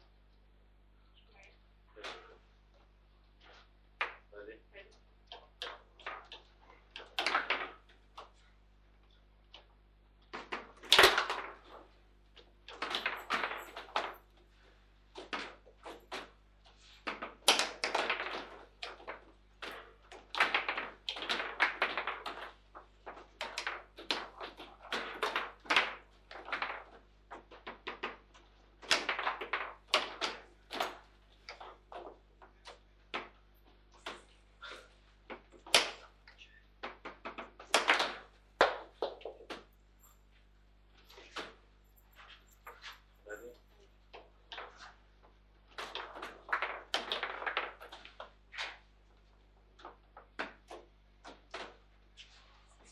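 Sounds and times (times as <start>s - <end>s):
table football knocks and clacks: 3.4s - 4.3s, 5.2s - 8.4s, 9.5s - 14.2s, 15.1s - 34.3s, 35.2s - 36.1s, 36.8s - 40.2s, 45.7s - 48.9s, 49.8s - 52.3s.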